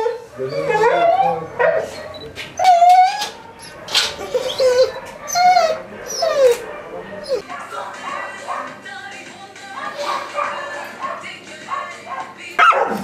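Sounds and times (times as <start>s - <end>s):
dogs whining and howling: 0.0s - 8.7s
dogs yipping: 0.0s - 8.8s, 9.9s - 13.0s.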